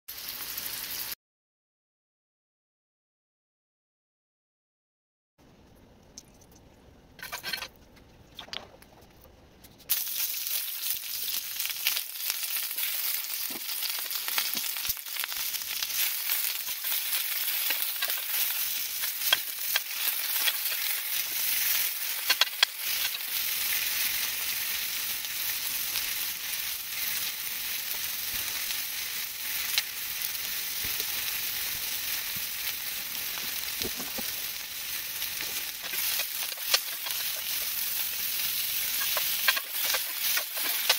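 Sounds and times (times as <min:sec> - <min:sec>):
vegetables sizzling in hot oil: 0:00.1 - 0:01.2, 0:09.9 - 0:40.9
spoon stirring vegetables: 0:35.3 - 0:40.9.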